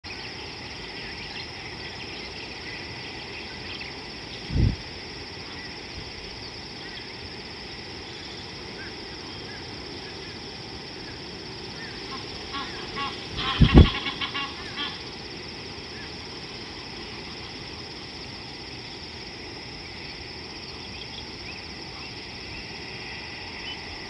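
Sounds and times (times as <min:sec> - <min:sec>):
high insect drone: 0:00.0 - 0:24.0
low wind thump on microphone: 0:04.4 - 0:04.9, 0:13.4 - 0:14.0.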